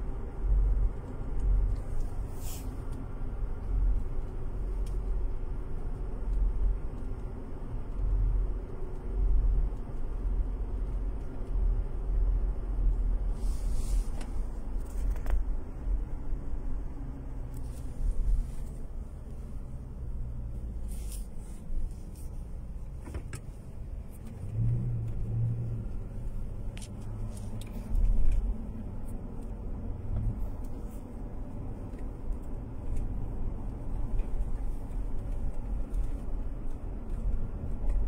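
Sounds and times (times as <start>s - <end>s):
car rumble from inside cabin: 0.0s - 38.0s.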